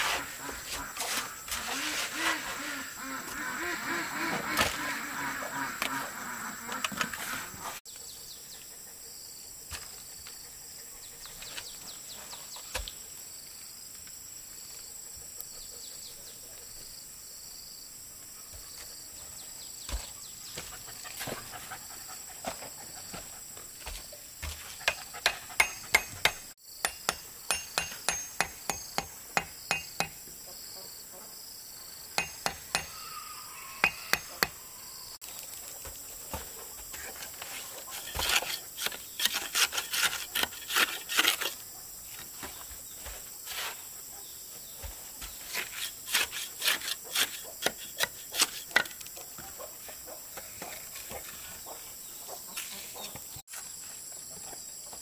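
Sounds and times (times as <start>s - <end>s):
hammering on wood: 24.4s - 30.2s, 32.2s - 33.0s.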